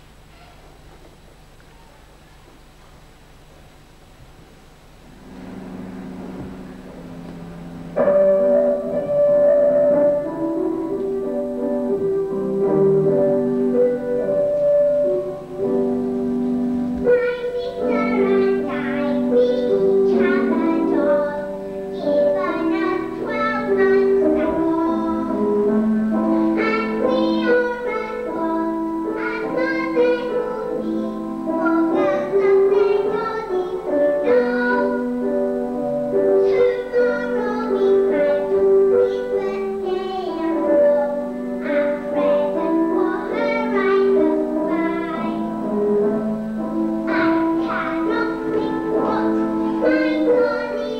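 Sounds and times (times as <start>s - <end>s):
piano accompaniment: 3.6s - 50.9s
girl singing: 16.8s - 50.9s.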